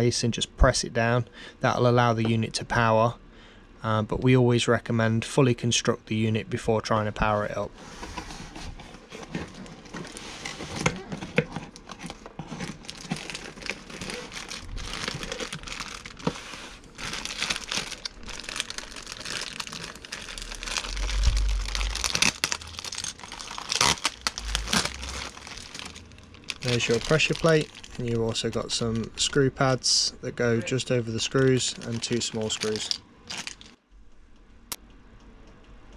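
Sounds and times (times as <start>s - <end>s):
plastic bags crinkling: 9.0s - 29.8s, 30.6s - 33.8s.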